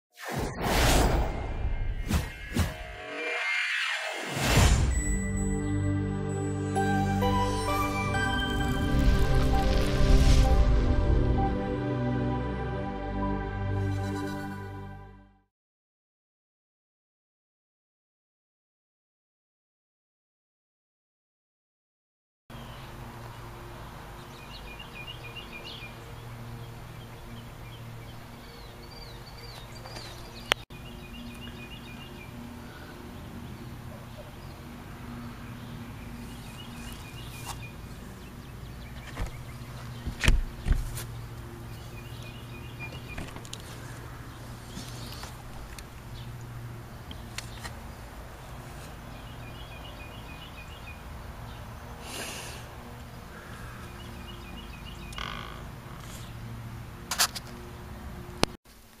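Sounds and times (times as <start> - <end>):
low hum: 0.6 - 15.3
small birds chirping: 24.2 - 56.5.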